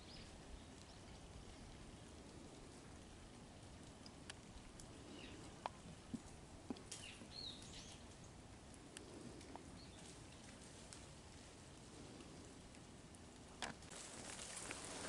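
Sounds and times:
light ticks: 0.7s - 13.9s
small bird chirps: 7.0s - 8.0s.

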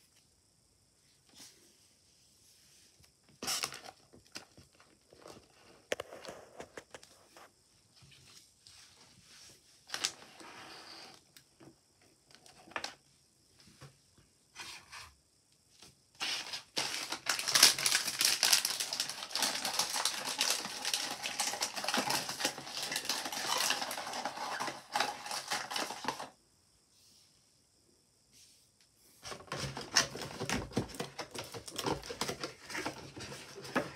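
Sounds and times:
packaging crinkling and rattling: 16.2s - 26.4s, 29.3s - 33.9s.

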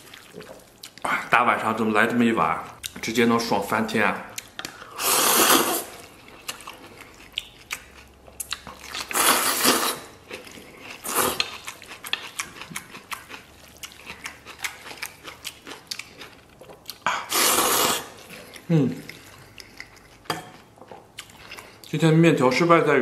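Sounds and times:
man slurping noodles: 4.9s - 6.0s, 9.1s - 10.1s, 17.2s - 18.2s.

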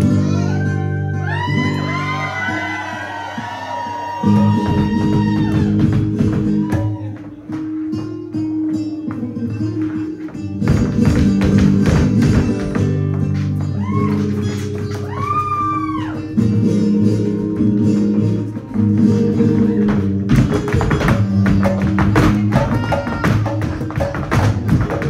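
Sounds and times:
flamenco footwork on stage: 0.0s - 25.0s
person singing: 22.2s - 23.9s.

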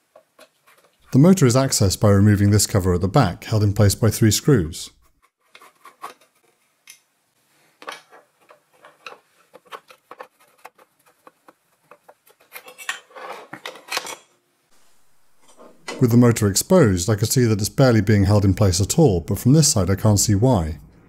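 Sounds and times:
metal cover clattering: 12.4s - 14.3s.

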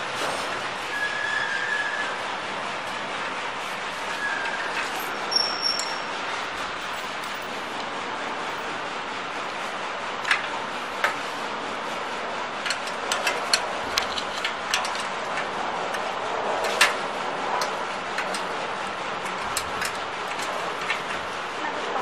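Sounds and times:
wrench clicking on bolts: 12.6s - 16.0s.

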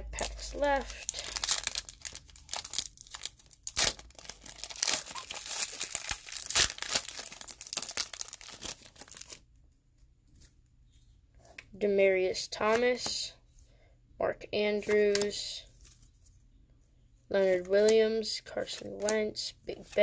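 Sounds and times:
foil wrapper tearing and crinkling: 0.2s - 9.4s.

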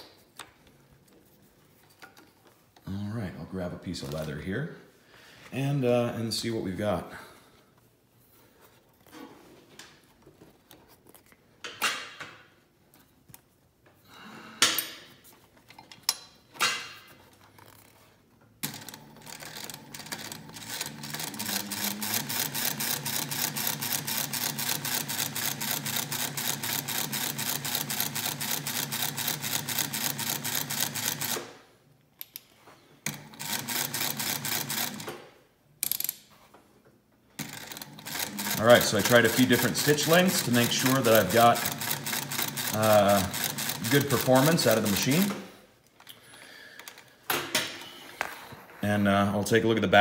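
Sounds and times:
sewing machine stitching leather: 18.6s - 31.6s, 33.0s - 35.2s, 37.3s - 45.4s.

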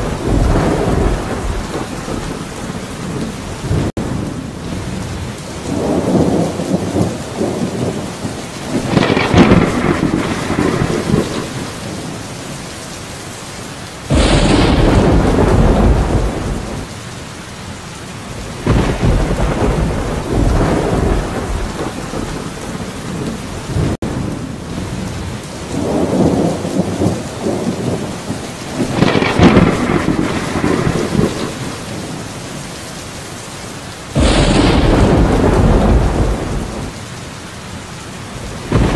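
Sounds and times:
loud thunder clap: 0.0s - 2.6s, 8.7s - 11.8s, 14.1s - 16.9s, 18.6s - 22.8s, 28.7s - 31.9s, 34.1s - 37.0s, 38.5s - 38.9s
thunder rumbling: 0.0s - 12.6s, 14.1s - 17.0s, 18.3s - 32.6s, 34.0s - 37.2s, 38.3s - 38.9s
heavy rain: 0.0s - 38.9s.

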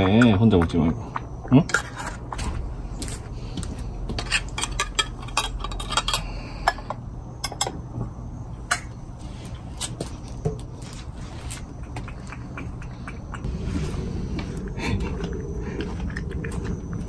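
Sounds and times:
cat eating: 10.7s - 17.0s.

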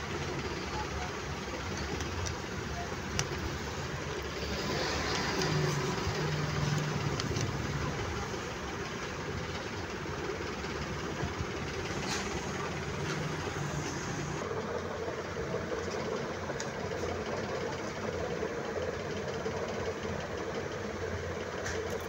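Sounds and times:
engine-like rumble: 0.0s - 22.0s.

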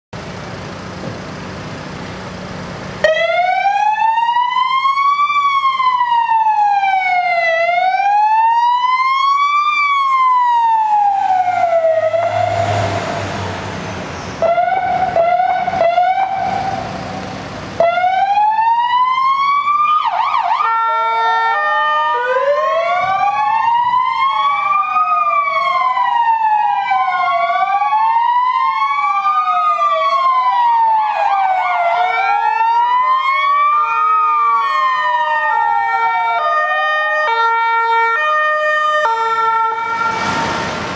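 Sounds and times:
ambulance sirens wailing: 2.9s - 40.9s
stepped high-low siren tone: 3.0s - 13.6s, 14.4s - 17.2s.

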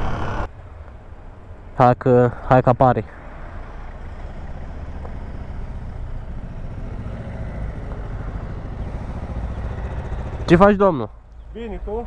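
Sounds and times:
street traffic: 0.0s - 12.0s
motorcycle engine idling: 3.2s - 12.0s.

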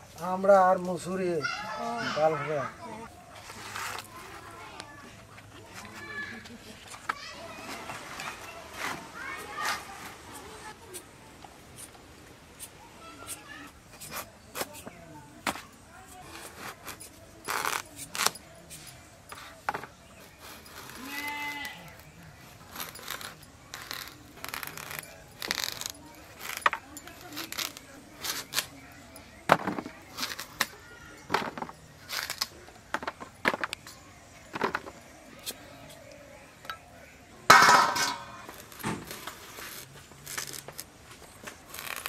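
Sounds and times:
pieces dropping onto bamboo tray: 37.5s - 39.2s.

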